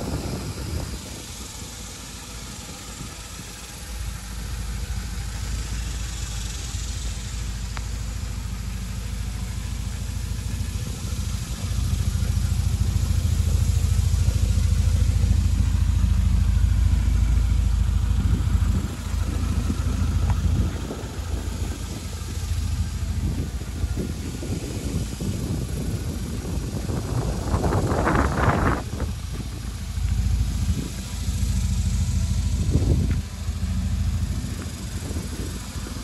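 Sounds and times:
car engine idling: 0.0s - 36.0s.

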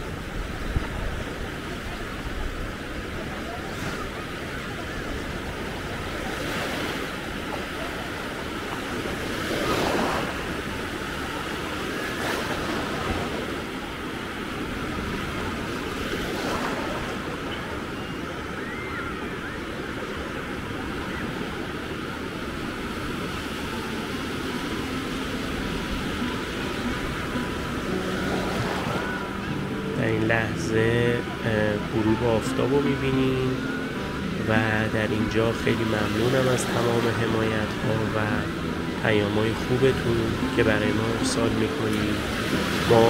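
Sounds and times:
waves washing up a beach: 0.0s - 43.0s.

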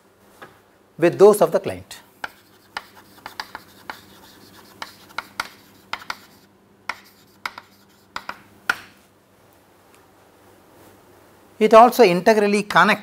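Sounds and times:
chalk writing on chalkboard: 2.2s - 8.9s.

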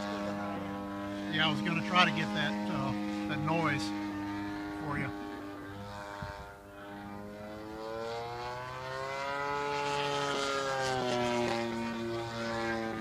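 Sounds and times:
model plane engine passing by: 0.0s - 13.0s.

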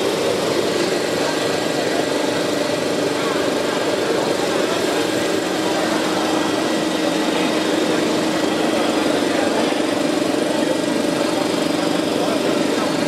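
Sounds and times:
printer fans and motors whirring: 0.0s - 13.0s.

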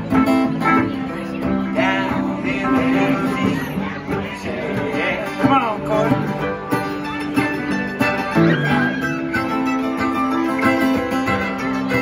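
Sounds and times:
mandolin: 0.0s - 12.0s
strummed and picked guitars: 0.0s - 12.0s
fiddle with sliding notes: 6.4s - 12.0s.

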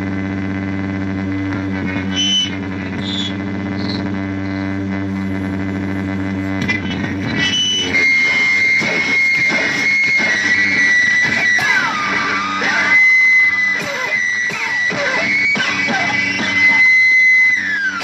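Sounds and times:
high bending whine: 0.0s - 18.0s
low droning chord: 0.0s - 18.0s
scraping crackling texture: 0.3s - 12.7s.

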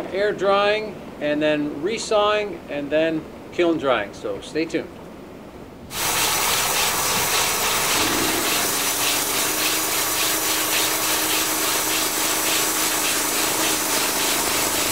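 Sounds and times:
saw blade hissing: 5.9s - 14.9s
steady machine hum: 5.9s - 14.9s.

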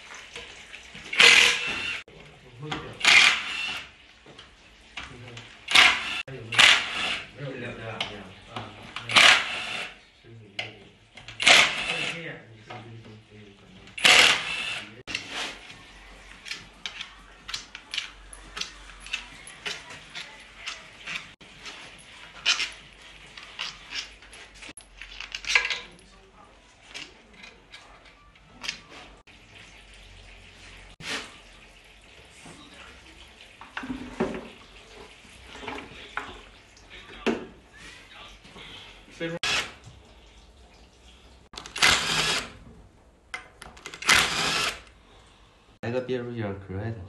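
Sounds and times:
fluid running and dripping: 0.0s - 14.2s, 15.0s - 43.4s
cordless drill whirring: 1.2s - 2.0s, 3.0s - 3.8s, 5.7s - 7.2s, 9.2s - 9.9s, 14.0s - 15.0s, 41.8s - 42.5s, 44.0s - 44.9s.

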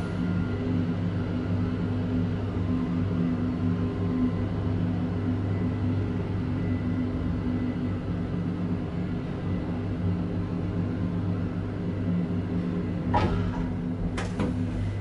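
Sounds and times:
elevator humming: 0.0s - 15.0s
elevator click: 13.1s - 14.8s.

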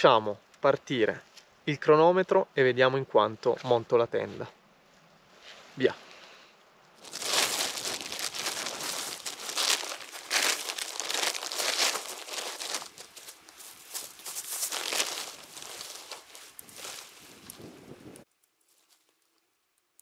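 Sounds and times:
tent fabric rustling: 7.0s - 19.0s.

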